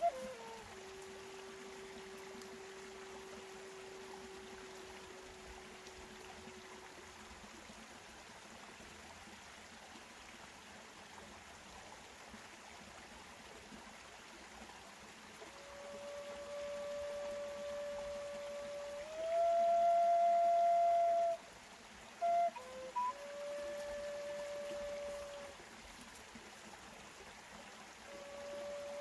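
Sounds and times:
flute holding notes: 0:00.0 - 0:07.0, 0:15.4 - 0:21.5, 0:22.2 - 0:25.6, 0:28.0 - 0:29.0
steady background hiss: 0:00.0 - 0:29.0.

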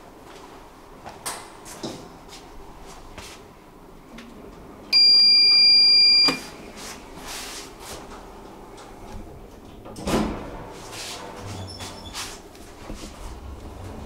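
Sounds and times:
lift buzzer beep: 0:05.0 - 0:06.5.

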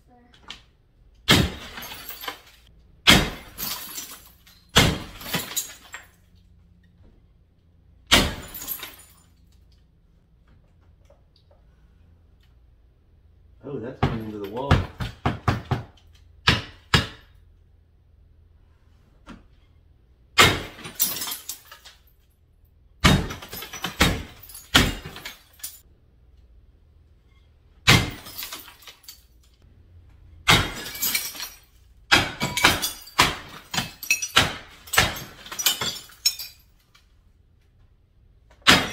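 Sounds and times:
bat smashing mirror: 0:01.2 - 0:06.0, 0:08.0 - 0:09.1, 0:20.4 - 0:21.7, 0:23.0 - 0:25.8, 0:27.8 - 0:29.1, 0:30.4 - 0:36.4, 0:38.6 - 0:38.9
glass shattering and tinkling: 0:01.3 - 0:06.4, 0:08.1 - 0:09.6, 0:20.4 - 0:22.3, 0:23.1 - 0:25.8, 0:27.9 - 0:29.6, 0:30.5 - 0:37.0.

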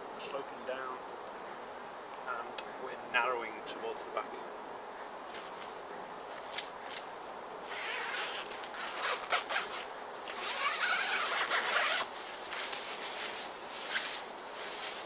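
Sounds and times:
tent fabric rustling: 0:05.3 - 0:15.0
tent zip being drawn open: 0:07.6 - 0:15.0.

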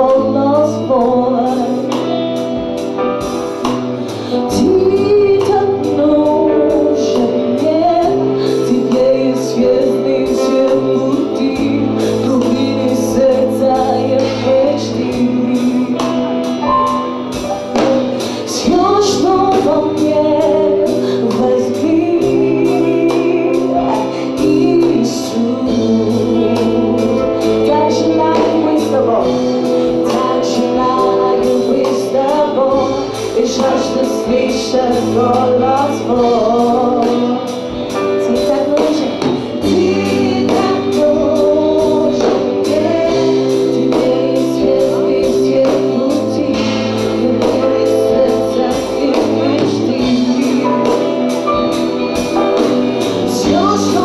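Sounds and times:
held keyboard chords: 0:00.0 - 0:54.0
woman singing into a microphone: 0:00.0 - 0:54.0
group singing: 0:39.4 - 0:51.3, 0:52.4 - 0:54.0.

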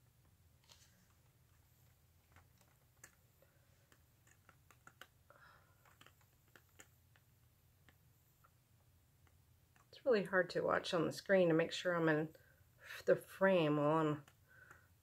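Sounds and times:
faint clicks and taps: 0:00.0 - 0:10.0, 0:14.0 - 0:15.0.

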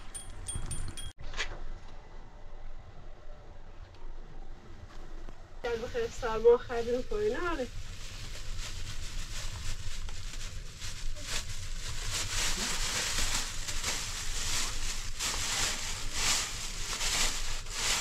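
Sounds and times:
rustling crackling noise: 0:04.8 - 0:18.0.

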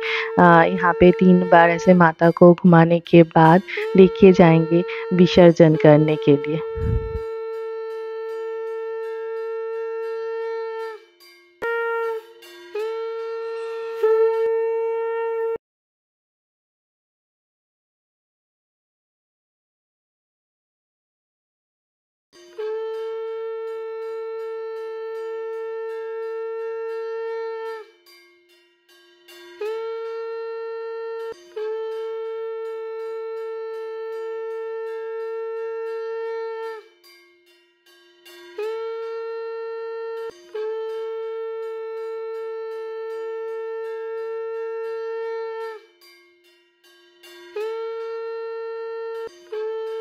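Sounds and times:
low steady tone: 0:00.0 - 0:07.4
conch shell blowing: 0:00.0 - 0:15.6, 0:22.4 - 0:28.2, 0:29.3 - 0:37.3, 0:38.2 - 0:46.2, 0:47.2 - 0:50.0.

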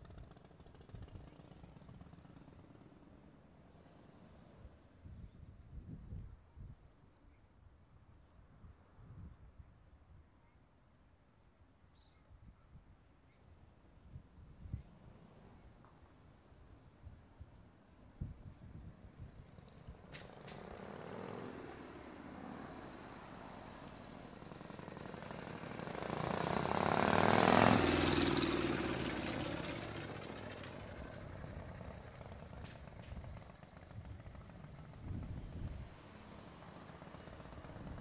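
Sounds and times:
motorcycle riding past: 0:00.0 - 0:05.2, 0:18.2 - 0:38.0.

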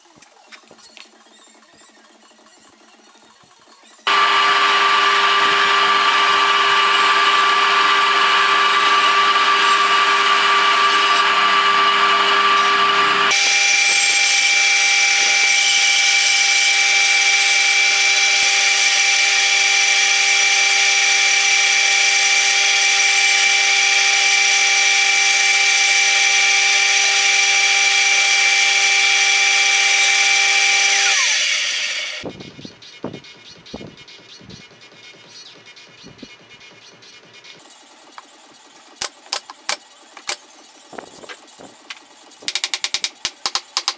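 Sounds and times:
saw motor winding down: 0:04.0 - 0:32.2
band saw cutting wood: 0:04.0 - 0:32.3.

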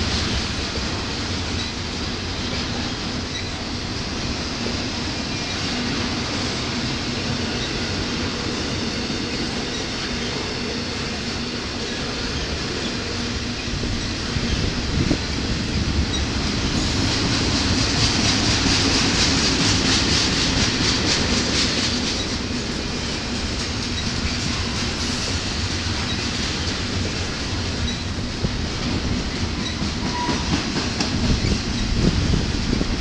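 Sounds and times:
freight train wheels rumbling: 0:00.0 - 0:33.0
rhythmic clickety-clack: 0:16.0 - 0:33.0.

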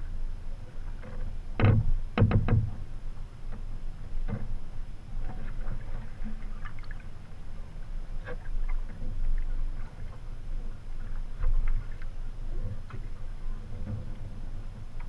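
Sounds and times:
paddle splashing in water: 0:05.2 - 0:15.0.

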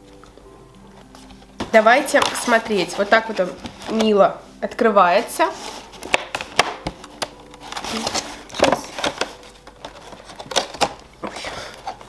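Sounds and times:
cardboard box crackling and tearing: 0:05.7 - 0:12.0.

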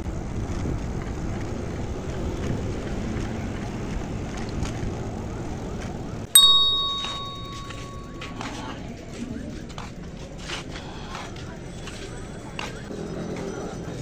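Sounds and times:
road and wind noise while cycling: 0:00.0 - 0:08.1
metallic bell ding: 0:06.4 - 0:08.5.

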